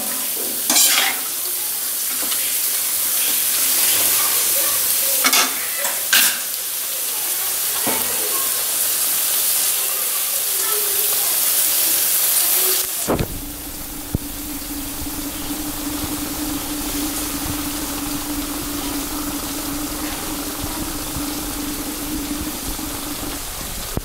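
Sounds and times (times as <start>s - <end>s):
chicken sizzling in pan: 0.0s - 24.0s
low thump: 13.1s - 24.0s.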